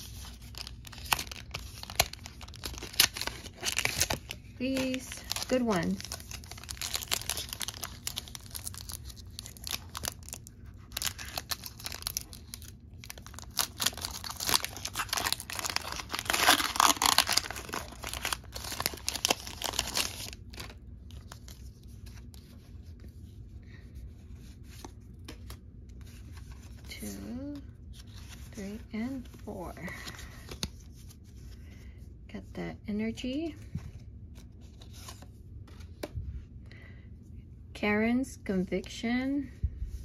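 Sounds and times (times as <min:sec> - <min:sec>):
foil wrapper tearing and crinkling: 0:00.0 - 0:21.4.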